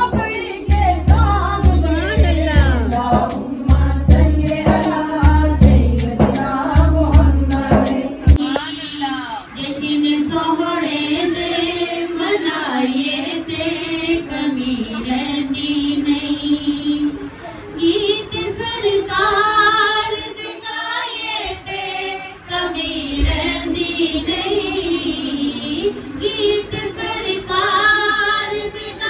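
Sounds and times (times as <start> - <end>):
woman singing devotional song: 0.0 - 29.0.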